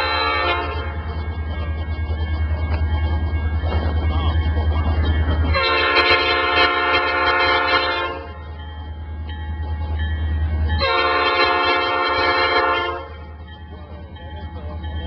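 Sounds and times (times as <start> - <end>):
locomotive air horn chord: 0.0 - 1.0, 5.5 - 8.4, 10.8 - 13.2.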